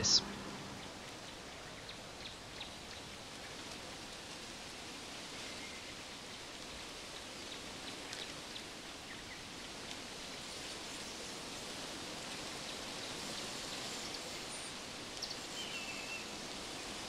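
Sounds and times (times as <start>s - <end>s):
outdoor background hiss: 0.0s - 17.0s
faint small ticks: 6.5s - 8.7s.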